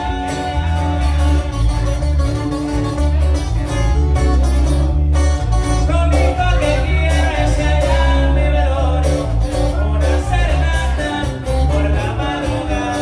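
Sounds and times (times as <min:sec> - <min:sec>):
person singing: 0:00.0 - 0:02.1, 0:05.6 - 0:13.0
electric bass line: 0:00.0 - 0:13.0
strummed acoustic guitars: 0:00.0 - 0:13.0.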